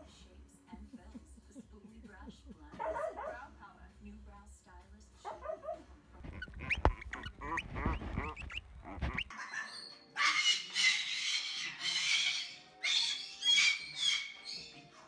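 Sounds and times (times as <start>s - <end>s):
husky whining: 5.3s - 9.3s
cockatoo squawking: 5.3s - 14.7s.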